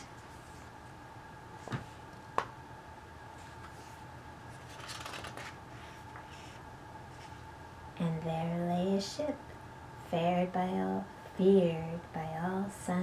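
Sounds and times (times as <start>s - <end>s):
page turning rustle: 3.4s - 6.6s.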